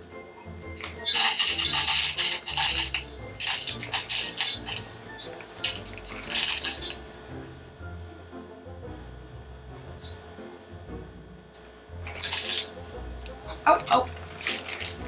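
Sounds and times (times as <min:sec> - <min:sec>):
background music: 0:00.0 - 0:15.0
chocolate chips clattering on metal: 0:00.8 - 0:07.2, 0:12.1 - 0:12.8, 0:13.9 - 0:15.0.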